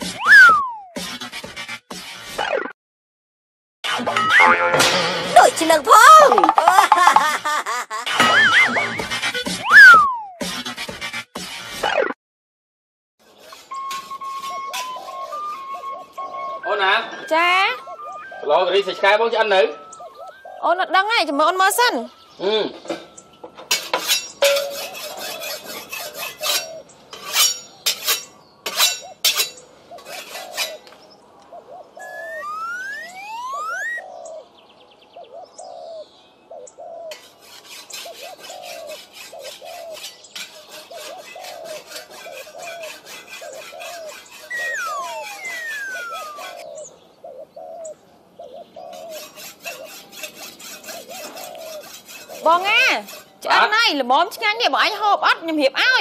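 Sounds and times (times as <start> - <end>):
whistling pitch glides: 0.0 - 1.0, 8.2 - 10.5, 13.7 - 21.0, 32.0 - 34.1, 44.5 - 46.8
short bird-like calls: 31.7 - 34.5, 43.5 - 49.9.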